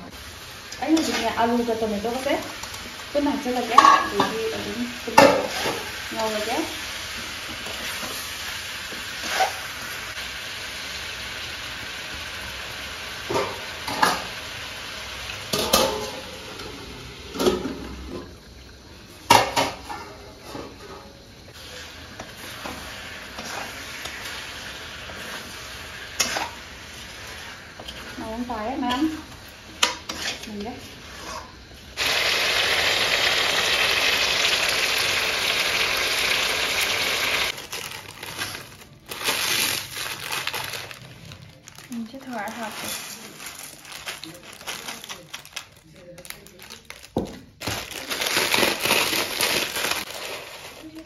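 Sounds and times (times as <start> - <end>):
frying sizzle: 0.0 - 51.0
spatula scraping a pan: 9.1 - 9.8, 21.6 - 31.8.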